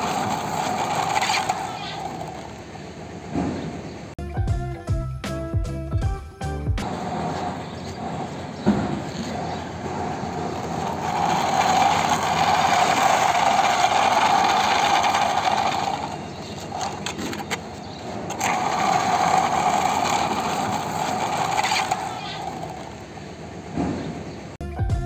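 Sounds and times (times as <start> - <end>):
small motor humming: 0.0 - 2.6, 6.9 - 23.0.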